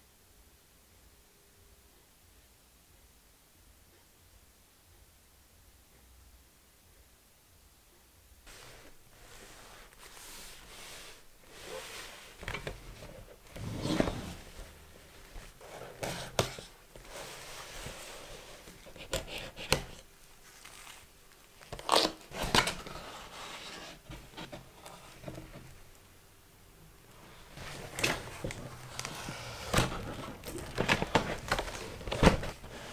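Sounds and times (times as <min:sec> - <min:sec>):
cardboard scraping and rustling: 0:08.5 - 0:25.8, 0:27.3 - 0:32.9.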